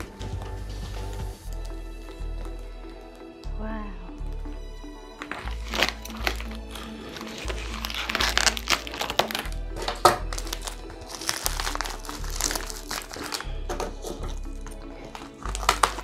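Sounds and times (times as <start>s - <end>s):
background music with bass line: 0.0s - 16.0s
foil bags crinkling: 5.2s - 16.0s.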